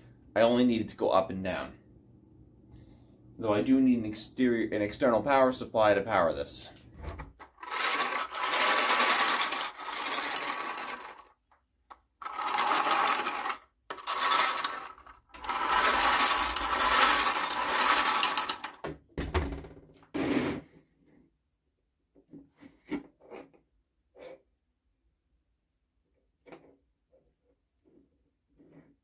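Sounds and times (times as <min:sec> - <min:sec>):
knocks and rustles of handled parts: 0:07.3 - 0:20.0
plastic gears whirring and rattling: 0:07.4 - 0:11.4, 0:12.2 - 0:18.8.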